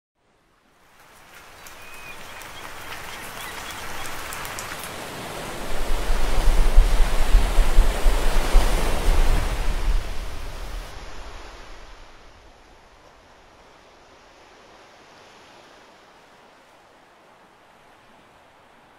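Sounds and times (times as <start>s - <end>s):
whale surging through water: 5.1s - 11.0s.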